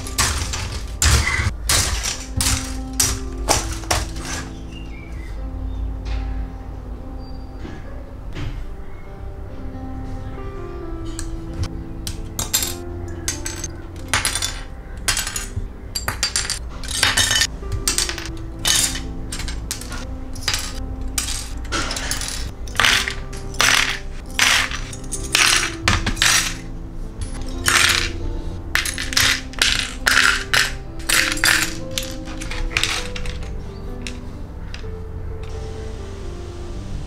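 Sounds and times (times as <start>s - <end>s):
plastic parts clattering: 0.0s - 4.9s, 11.1s - 35.6s
background music: 0.0s - 37.0s.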